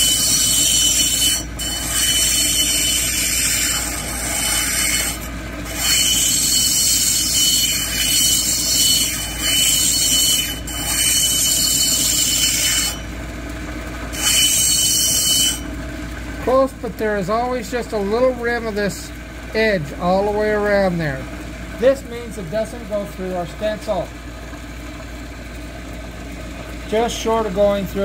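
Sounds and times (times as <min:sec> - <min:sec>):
stone grinding on spinning wheel: 0:00.0 - 0:13.1, 0:14.1 - 0:15.7
machine hum: 0:00.0 - 0:28.0.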